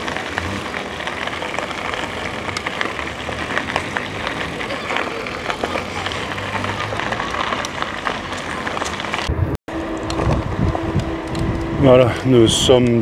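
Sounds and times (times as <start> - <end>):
tyre and wind noise: 0.0 - 13.0
bike clicks and rattles: 9.9 - 13.0.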